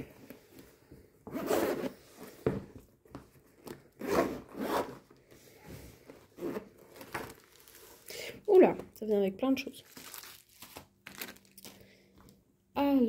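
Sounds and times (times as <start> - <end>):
zipper rasping open: 1.3 - 2.1, 3.9 - 5.1, 6.3 - 7.2.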